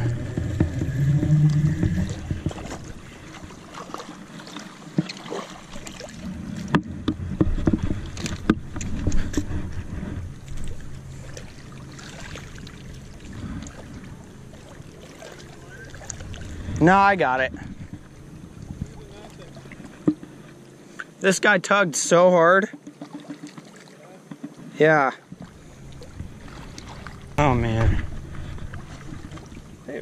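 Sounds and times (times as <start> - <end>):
wind rumble on microphone: 0.0 - 3.6, 5.8 - 11.6, 15.6 - 20.2, 25.6 - 29.9.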